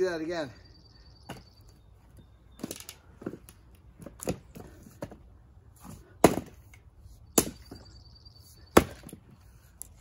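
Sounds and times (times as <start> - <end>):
axe chopping firewood: 5.8 - 7.8, 8.7 - 9.3.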